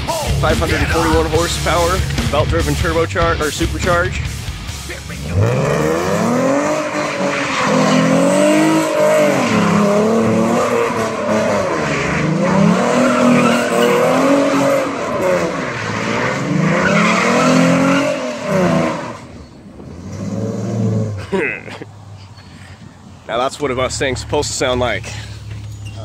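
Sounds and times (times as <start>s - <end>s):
car engine revving: 0.0s - 21.3s
tyres squealing: 6.3s - 20.9s.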